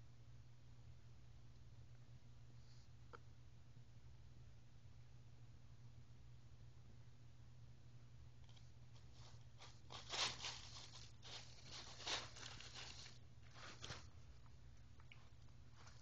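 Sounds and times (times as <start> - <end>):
tissue paper rustling: 8.9 - 14.3.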